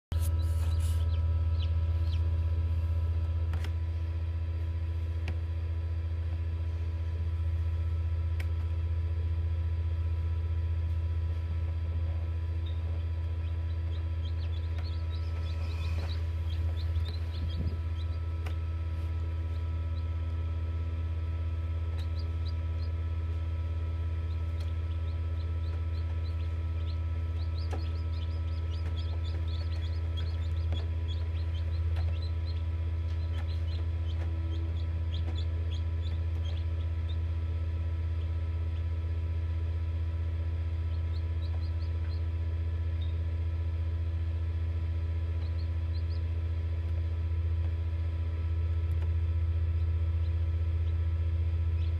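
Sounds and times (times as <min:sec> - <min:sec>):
incubator humming: 0:00.1 - 0:51.9
chicks peeping: 0:00.2 - 0:03.8, 0:12.0 - 0:47.1, 0:47.7 - 0:51.9.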